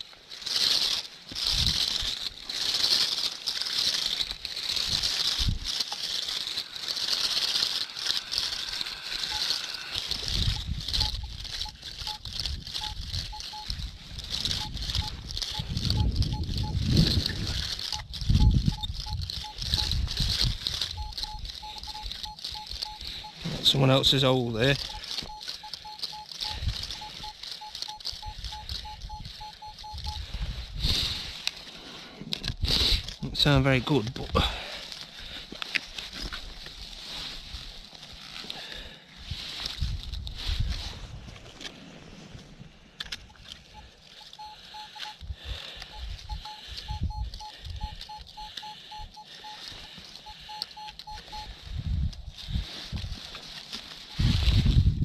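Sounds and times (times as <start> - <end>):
metal detector short beeps: 8.6 - 30.3, 43.3 - 45.2, 45.8 - 51.7.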